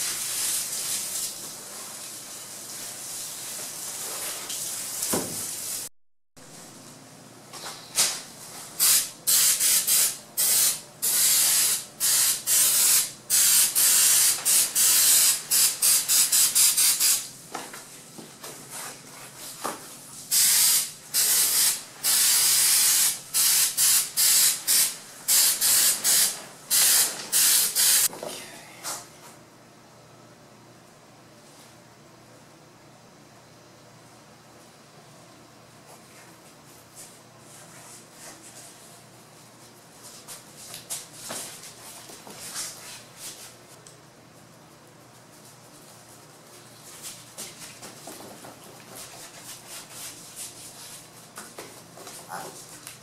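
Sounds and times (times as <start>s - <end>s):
aerosol can spraying: 8.8s - 17.3s, 20.3s - 28.1s.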